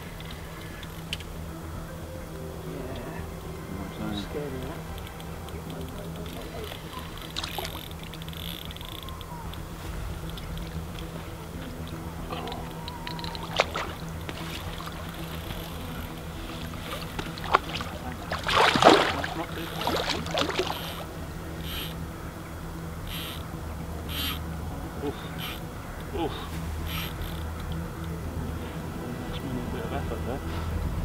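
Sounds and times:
fish splashing at surface: 16.9s - 21.1s.

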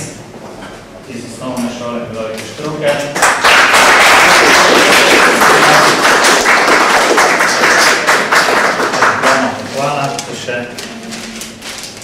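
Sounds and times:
small crowd applauding: 3.0s - 9.7s.

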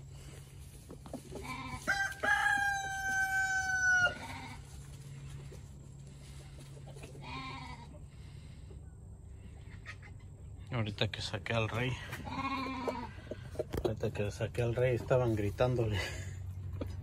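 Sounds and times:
rooster crowing: 1.7s - 4.6s.

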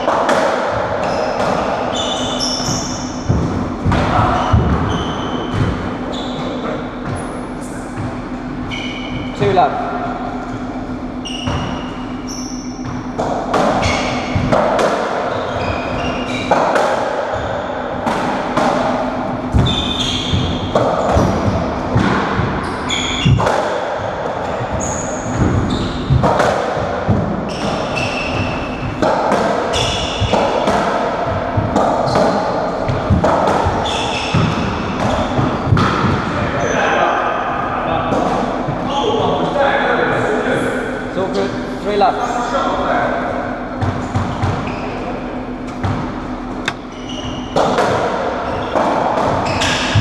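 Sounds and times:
shoe squeaks on wooden floor: 1.0s - 3.3s, 4.2s - 8.0s, 8.6s - 9.5s, 10.7s - 13.2s, 15.3s - 16.5s, 19.5s - 21.6s, 22.6s - 23.4s, 24.4s - 26.2s, 27.5s - 29.0s, 29.7s - 30.5s, 33.8s - 35.8s, 44.4s - 45.1s, 46.7s - 47.6s, 49.4s - 50.0s
ball struck by rackets: 12.8s - 24.7s, 25.3s - 36.3s, 45.7s - 50.0s.

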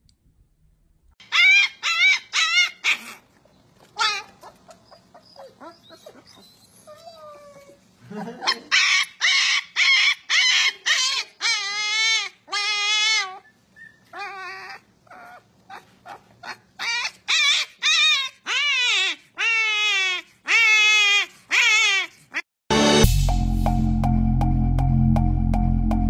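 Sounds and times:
puppy yipping: 1.2s - 7.8s, 8.4s - 22.4s
puppy whining: 1.2s - 22.4s.

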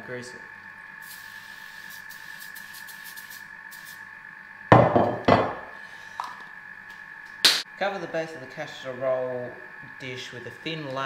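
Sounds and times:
oil spray can hissing: 1.0s - 4.0s.

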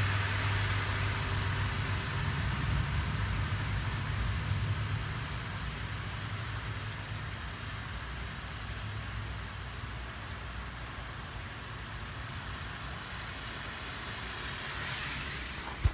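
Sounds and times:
rain falling: 0.0s - 15.9s.

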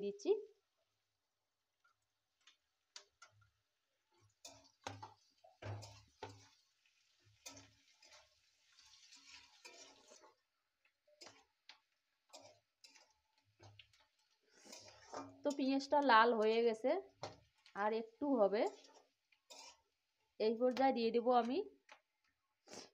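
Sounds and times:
light sizzle: 0.0s - 22.9s
metal spatula scraping wok: 4.4s - 10.4s, 11.2s - 11.6s, 12.2s - 16.0s, 18.6s - 19.9s.

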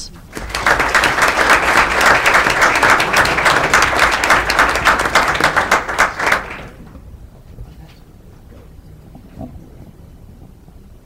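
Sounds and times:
audience applauding: 0.3s - 7.0s.

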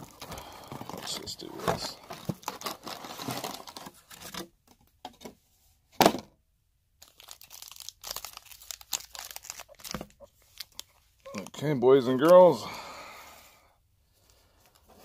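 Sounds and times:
tearing and crinkling wrappers: 0.0s - 4.2s, 7.0s - 12.4s.

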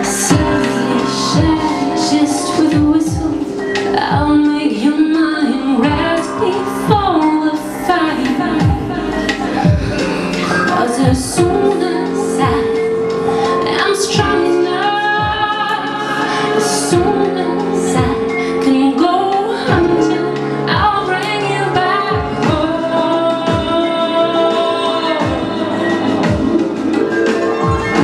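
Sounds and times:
backing music: 0.0s - 28.0s
woman singing into microphone: 0.0s - 28.0s
deep sweeping kick drum: 8.5s - 10.4s.

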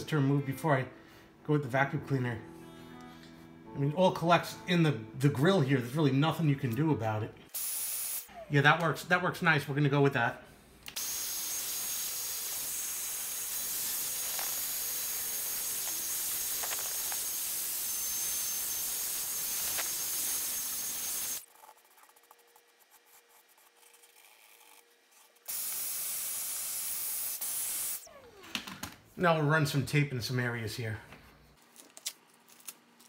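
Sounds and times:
handheld vacuum running: 11.0s - 21.5s.

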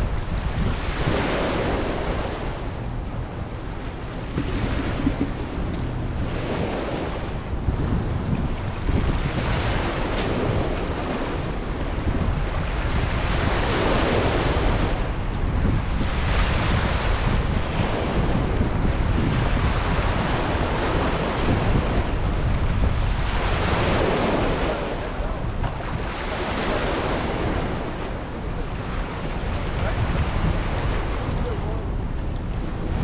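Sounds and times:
waves washing onto rocky shore: 0.0s - 33.0s
wind buffeting microphone: 0.0s - 33.0s.

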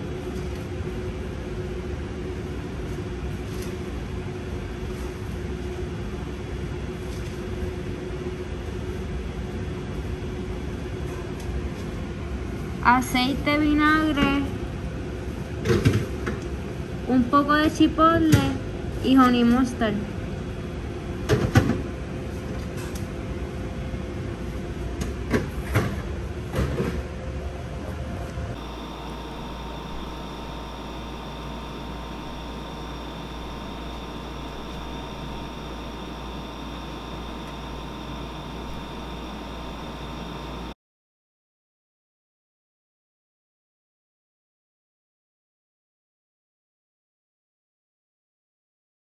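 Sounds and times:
machinery hum and rumble: 0.0s - 40.8s
constant tone: 28.5s - 40.8s.

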